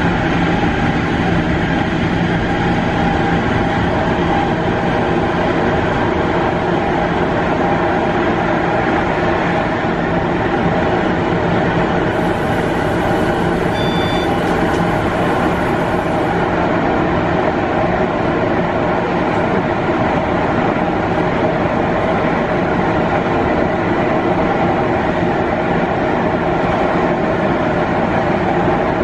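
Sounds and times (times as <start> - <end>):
tram wheels rumbling on rail: 0.0 - 29.0
short high tone: 12.4 - 16.1.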